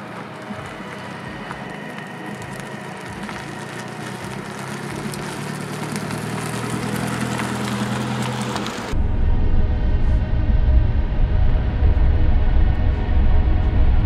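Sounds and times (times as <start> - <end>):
tyre noise on asphalt: 0.0 - 9.0
diesel car engine passing: 0.0 - 14.0.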